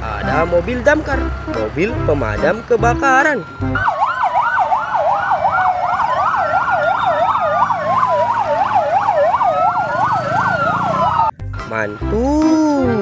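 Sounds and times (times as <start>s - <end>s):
siren in a fast yelp: 2.5s - 11.3s
siren in a slow wail: 3.0s - 11.4s.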